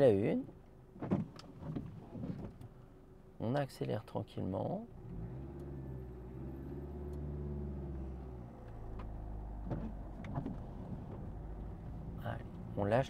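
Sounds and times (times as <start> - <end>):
car engine pulling away: 4.9 - 13.0.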